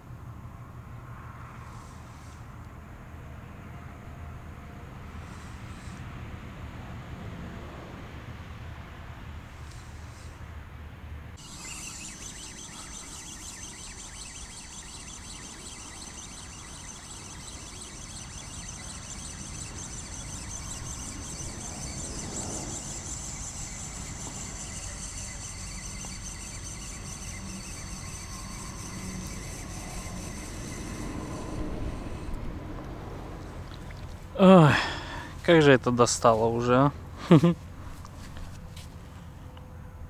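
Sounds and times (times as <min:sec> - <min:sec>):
fishing reel whirring: 0:11.4 - 0:34.3.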